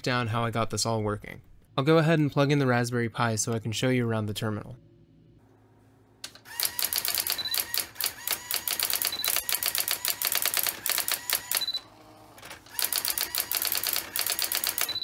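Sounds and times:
electronic typewriter clattering strikes: 6.6s - 11.8s, 12.4s - 15.0s.

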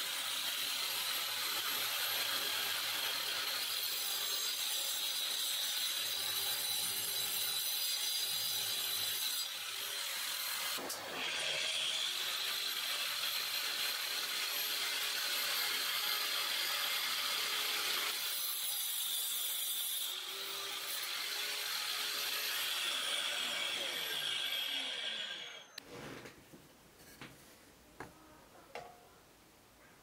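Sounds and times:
saw blade cutting wood: 0.0s - 25.8s.

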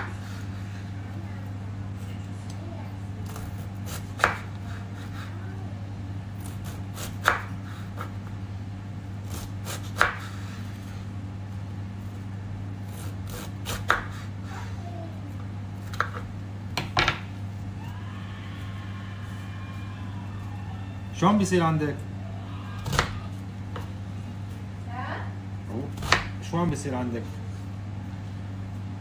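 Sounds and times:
steady low hum: 0.0s - 29.0s
knife chopping cabbage: 3.2s - 5.3s, 6.4s - 8.2s, 9.2s - 10.5s, 12.9s - 14.3s, 22.8s - 23.2s, 25.8s - 26.4s.

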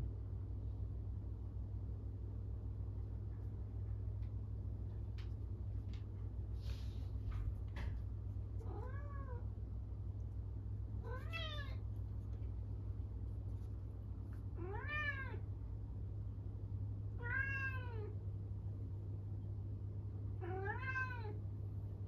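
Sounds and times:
cat meowing loudly: 11.0s - 11.8s, 17.2s - 18.1s, 20.4s - 21.4s.

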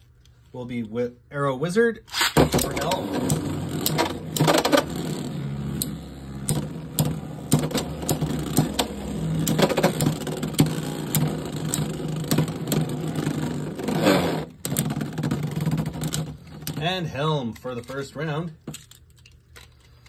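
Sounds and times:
spinning tops clacking: 2.1s - 16.9s
spinning tops whirring: 2.1s - 17.0s.

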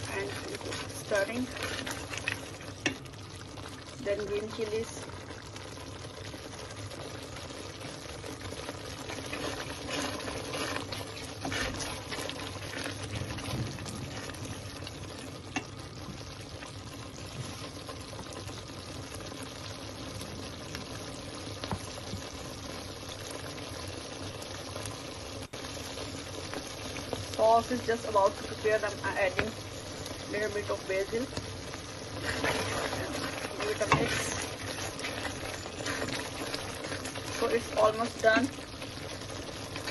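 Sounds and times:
wooden spatula stirring and scraping: 0.0s - 19.4s, 25.9s - 39.9s
thick sauce bubbling in a pot: 0.0s - 39.9s.

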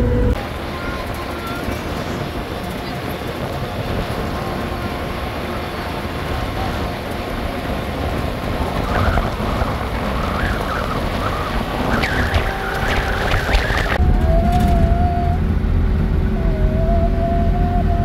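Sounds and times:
truck engine and road rumble: 0.0s - 18.0s
wavering high-pitched sounds: 10.4s - 18.0s.

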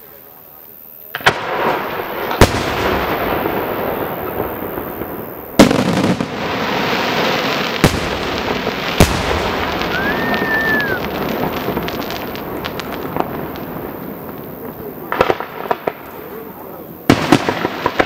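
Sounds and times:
firework crackling: 0.0s - 18.0s
firework shells bursting: 1.2s - 18.0s
firework whistle: 8.9s - 13.7s.

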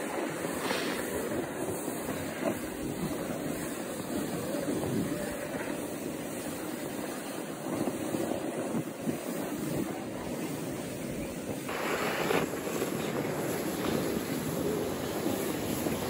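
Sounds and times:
snowboard sliding over snow: 0.0s - 16.0s
wind noise on microphone: 0.0s - 16.0s.

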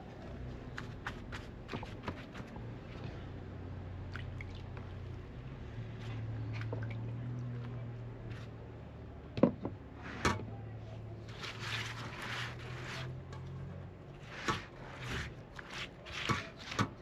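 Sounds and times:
soft wet squishing rustle: 0.0s - 8.8s.

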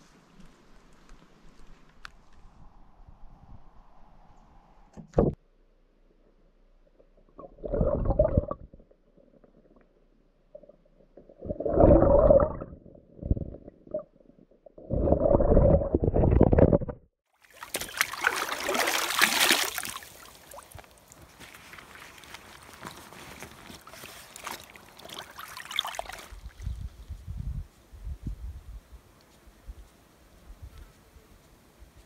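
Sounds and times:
underwater gurgling and sloshing: 7.0s - 17.0s
water splashing into bag: 17.4s - 26.6s.

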